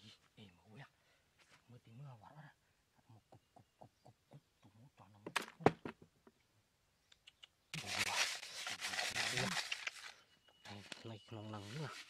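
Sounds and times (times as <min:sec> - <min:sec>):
sharp clicks: 0:07.1 - 0:07.8
plastic bottle of seed rattling: 0:07.8 - 0:10.2.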